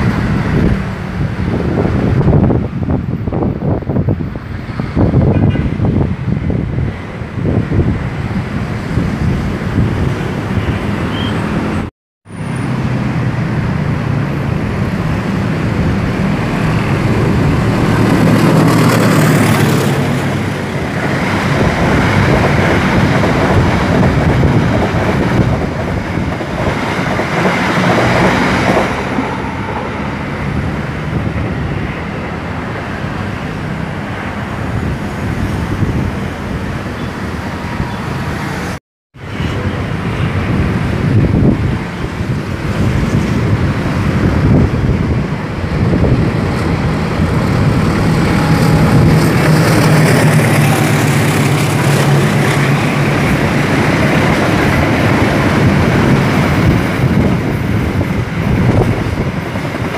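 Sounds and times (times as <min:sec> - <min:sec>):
electric train running past: 0:12.4 - 0:59.9.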